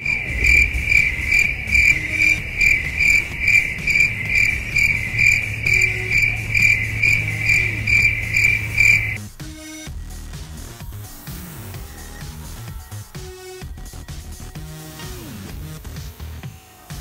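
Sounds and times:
cricket chirping: 0.0 - 9.2.

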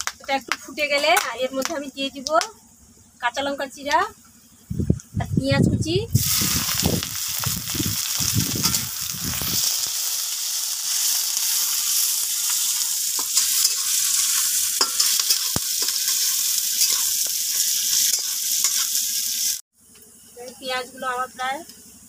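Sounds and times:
onions sizzling in oil: 6.1 - 19.6
metal spatula scraping pan: 12.4 - 19.1.

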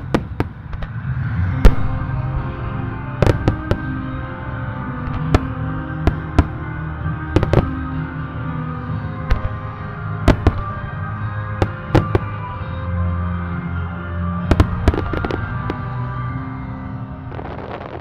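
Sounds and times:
slow background music: 0.0 - 18.0
firework bangs: 3.1 - 4.1, 5.0 - 6.6, 7.4 - 7.9, 10.2 - 10.8, 11.6 - 12.4, 14.5 - 16.0, 17.3 - 18.0.

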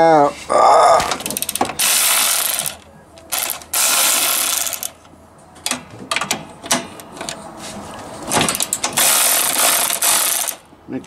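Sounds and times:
power ratchet spinning socket: 1.2 - 5.0, 8.6 - 10.6.

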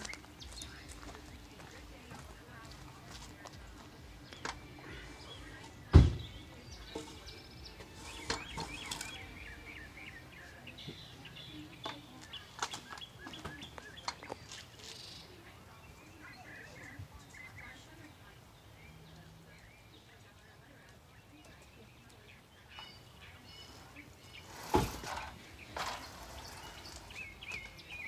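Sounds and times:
birds chirping: 0.0 - 28.0
wooden board thump: 5.9 - 6.3, 24.7 - 25.2.

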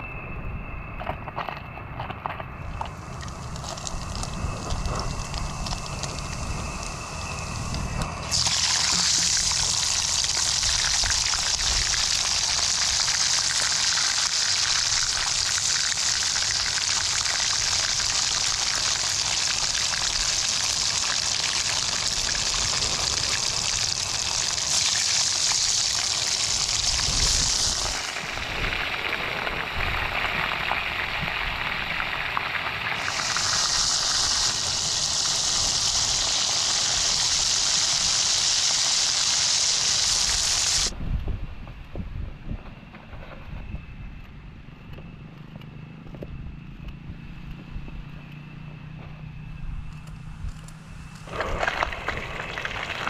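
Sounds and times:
hot oil sizzling: 2.8 - 40.9, 51.2 - 53.0.

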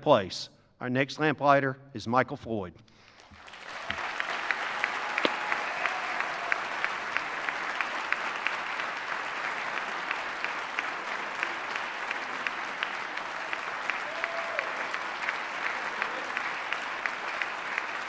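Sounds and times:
audience applauding: 3.3 - 18.0
single sharp claps: 3.4 - 18.0.

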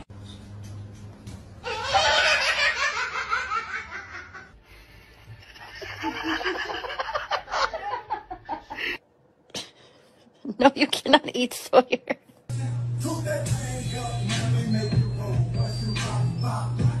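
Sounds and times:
people laughing: 1.6 - 4.5, 5.4 - 9.0.

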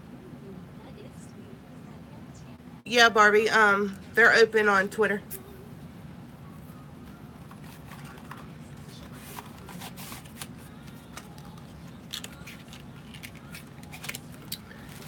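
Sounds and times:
steady low hum: 0.0 - 15.0
packaging clicks and rustles: 7.4 - 15.0.

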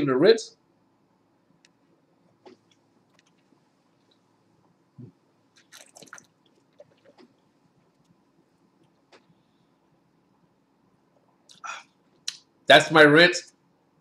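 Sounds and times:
wine swished in mouth: 5.6 - 7.3.

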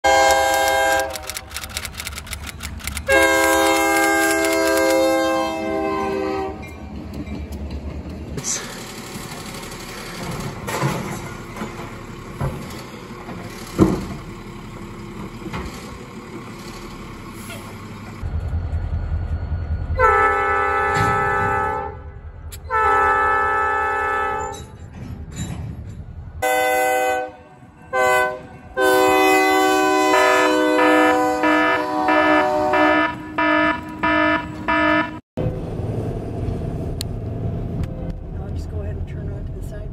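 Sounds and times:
locomotive air horn blasts: 0.0 - 1.4, 3.0 - 6.7, 20.0 - 24.6, 26.4 - 35.2
locomotive rumble: 0.0 - 39.9.

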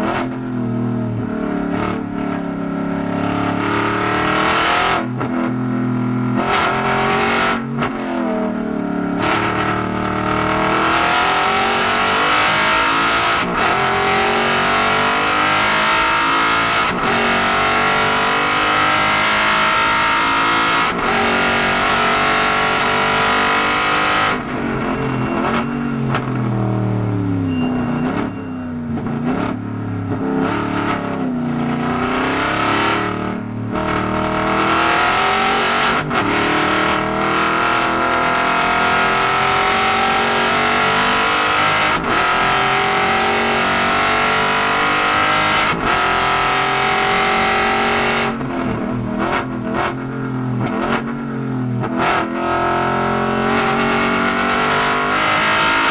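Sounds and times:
car engine accelerating hard: 0.0 - 55.9
engine revs rising and falling: 3.0 - 5.1, 6.3 - 7.6, 9.2 - 27.4, 29.2 - 50.0, 50.6 - 55.9.

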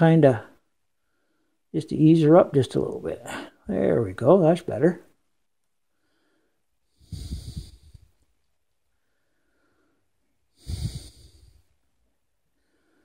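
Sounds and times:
person exhaling: 6.1 - 8.2, 9.1 - 11.8.

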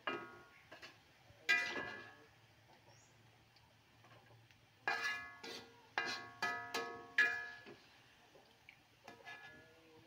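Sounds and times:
metal spatula scraping a wok: 0.0 - 2.2, 4.0 - 8.0, 9.1 - 9.8.

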